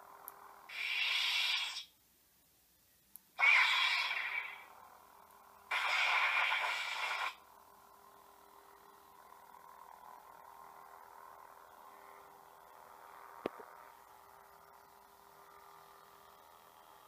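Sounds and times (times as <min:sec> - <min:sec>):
faint steady hum: 0:00.0 - 0:17.0
faint room hiss: 0:01.6 - 0:03.4.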